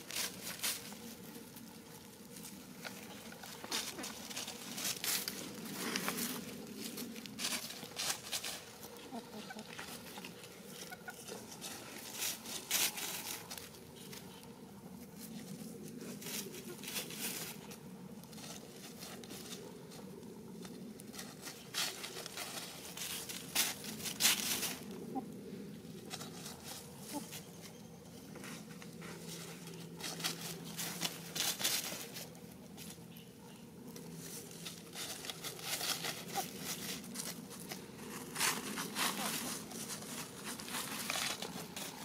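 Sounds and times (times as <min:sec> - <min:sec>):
dry leaves rustling and crackling: 0:00.0 - 0:42.0.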